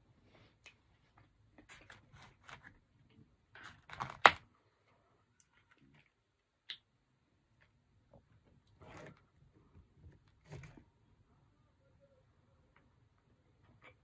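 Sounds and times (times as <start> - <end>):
styrofoam containers clicking and crackling: 3.6 - 4.5.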